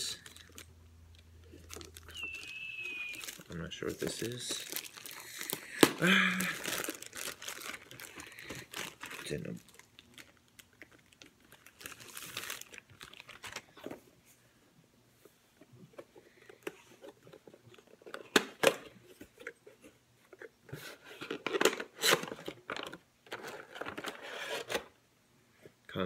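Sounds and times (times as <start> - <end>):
packaging crinkling and tearing: 0.0 - 0.7, 1.4 - 13.9, 21.2 - 24.9.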